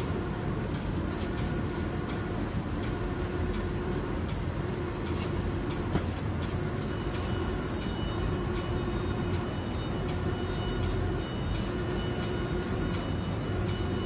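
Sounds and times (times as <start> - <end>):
spray-painting machine rumbling: 0.0 - 14.0
light mechanical ticks: 0.7 - 8.0.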